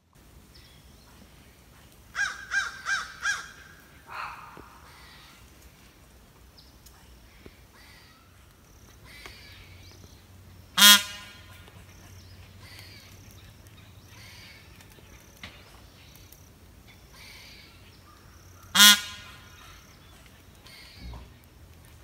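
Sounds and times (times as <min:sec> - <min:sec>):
peacock honking calls: 0:10.7 - 0:11.7, 0:18.6 - 0:19.8.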